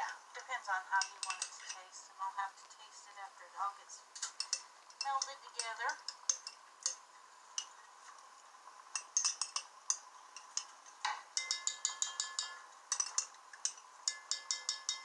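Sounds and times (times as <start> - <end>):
spoon clinking against pot: 1.0 - 1.8, 4.2 - 7.0, 9.0 - 15.0.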